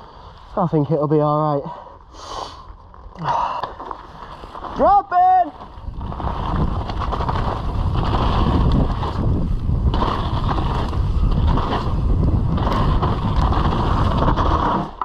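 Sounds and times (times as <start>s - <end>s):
bike tyre and trail noise: 0.0s - 15.0s
wind rushing over microphone: 5.6s - 14.9s.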